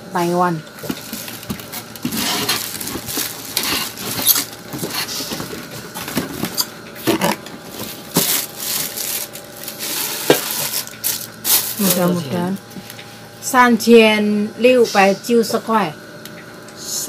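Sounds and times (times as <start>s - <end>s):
plastic bag crinkling: 0.8s - 6.7s, 7.8s - 12.7s.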